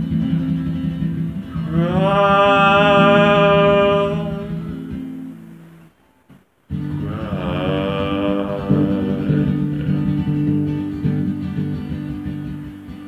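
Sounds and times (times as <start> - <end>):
strummed acoustic guitar: 0.0 - 6.1, 6.7 - 13.0
man singing long note: 1.5 - 5.0, 6.9 - 10.4.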